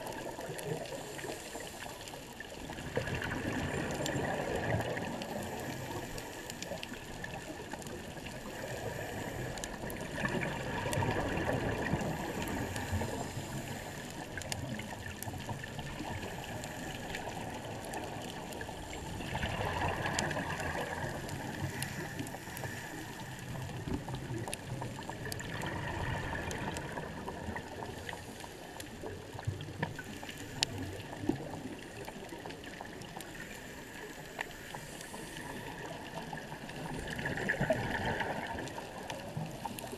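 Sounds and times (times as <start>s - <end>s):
diver exhaling bubbles underwater: 2.7s - 6.1s, 35.5s - 39.0s.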